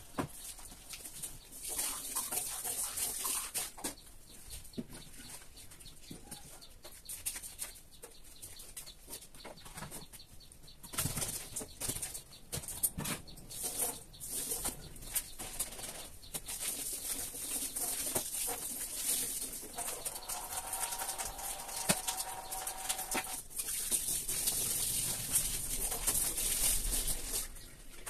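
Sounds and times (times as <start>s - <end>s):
small knocks and rustles: 0.0s - 22.2s.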